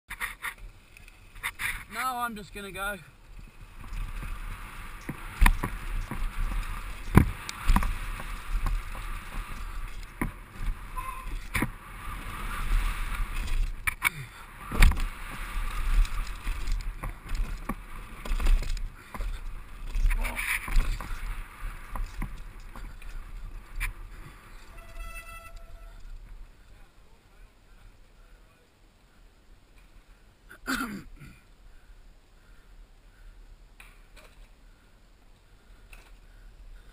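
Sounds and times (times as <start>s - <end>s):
bike tyres rattling over dirt: 0.1s - 27.9s
wind rumbling on microphone: 3.2s - 26.8s.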